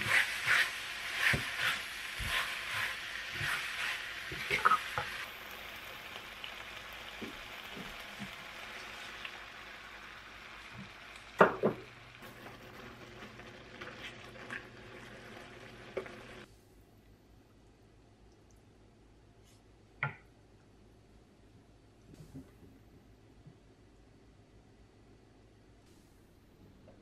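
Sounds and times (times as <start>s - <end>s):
wooden spatula stirring and scraping: 0.0s - 5.3s, 12.2s - 16.5s
pork and vegetables sizzling in pan: 0.0s - 16.5s.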